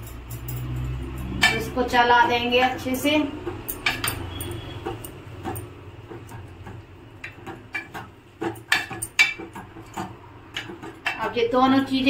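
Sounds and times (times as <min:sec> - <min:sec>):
spoon clinking against metal pot: 0:00.0 - 0:02.4, 0:03.6 - 0:05.8.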